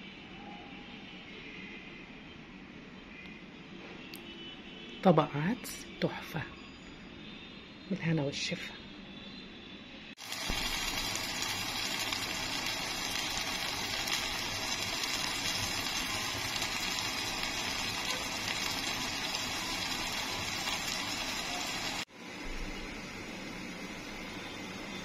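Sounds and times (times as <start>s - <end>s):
sauce sizzling and bubbling in pot: 10.2s - 25.0s.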